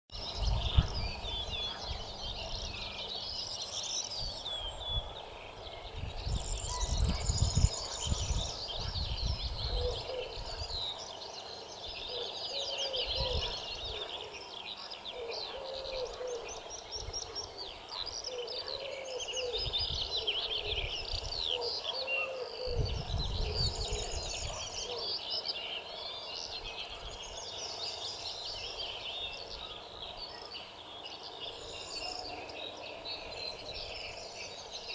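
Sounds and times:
songbirds chorus: 0:00.1 - 0:34.9
wind buffeting microphone: 0:00.2 - 0:03.1, 0:04.1 - 0:11.0, 0:13.0 - 0:14.1, 0:19.4 - 0:21.7, 0:22.6 - 0:25.0.

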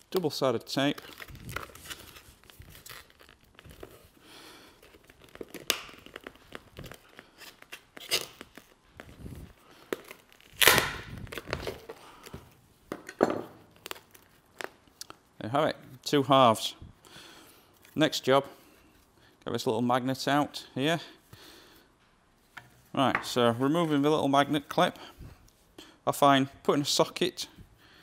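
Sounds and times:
tape tearing: 0:00.8 - 0:12.4.

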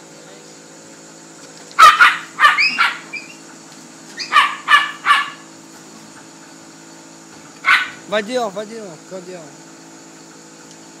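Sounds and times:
small dog yapping: 0:01.8 - 0:03.5, 0:04.1 - 0:05.5, 0:07.6 - 0:08.0.

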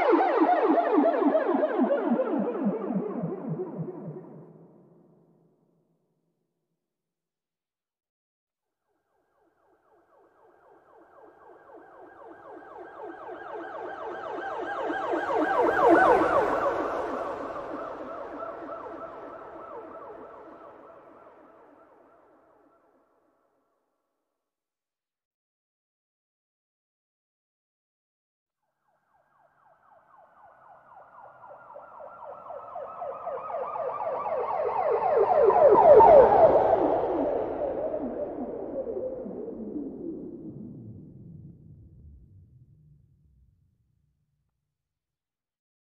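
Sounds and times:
police siren yelping: 0:00.0 - 0:04.8, 0:10.2 - 0:22.6, 0:29.2 - 0:41.7.

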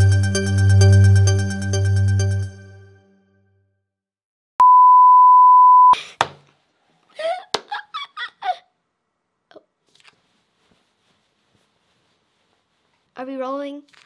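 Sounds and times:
electronic beep tone: 0:04.6 - 0:06.0
girl laughing: 0:07.1 - 0:08.8.

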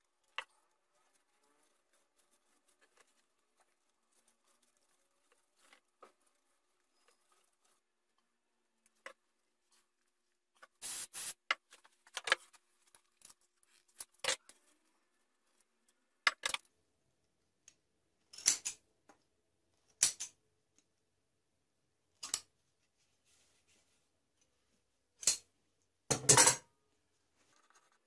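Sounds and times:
aerosol spray can hissing: 0:10.8 - 0:11.5.

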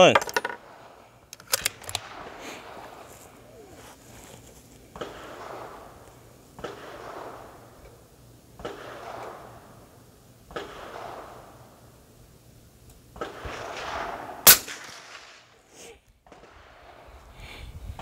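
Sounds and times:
distant rifle shots: 0:01.7 - 0:03.5, 0:04.9 - 0:07.8, 0:08.6 - 0:09.9, 0:10.5 - 0:11.6, 0:13.2 - 0:15.6.

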